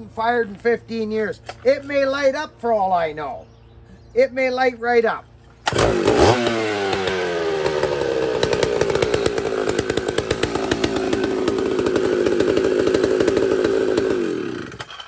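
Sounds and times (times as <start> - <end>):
chainsaw running: 5.3 - 15.0.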